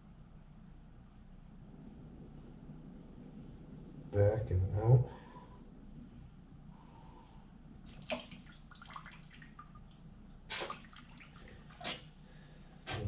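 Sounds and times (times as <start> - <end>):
water splashing into a sink: 7.9 - 12.1.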